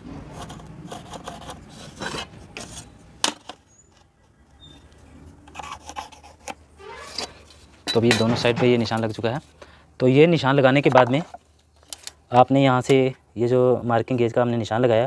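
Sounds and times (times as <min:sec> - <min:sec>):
pencil scratching on board: 0:00.3 - 0:02.8, 0:05.5 - 0:06.6.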